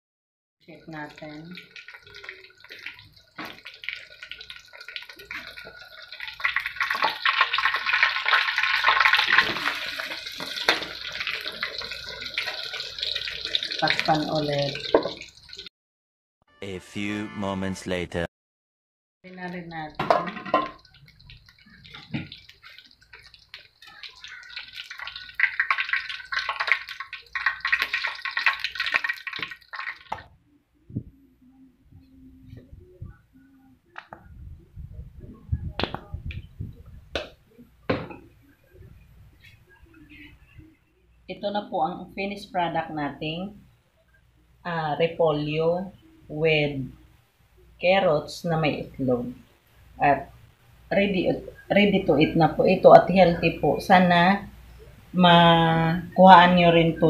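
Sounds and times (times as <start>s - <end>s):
patty sizzling in oil: 1.0s - 15.7s, 20.1s - 30.2s.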